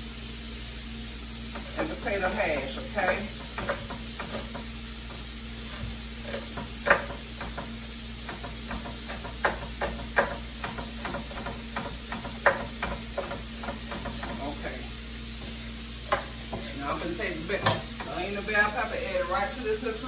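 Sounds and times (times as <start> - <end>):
faint sizzle of frying: 0.0 - 20.0
knife chopping on cutting board: 5.7 - 14.4.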